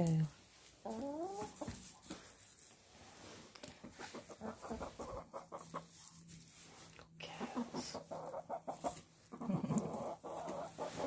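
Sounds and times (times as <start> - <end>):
hens clucking: 0.7 - 2.7, 3.7 - 6.6, 7.3 - 11.0.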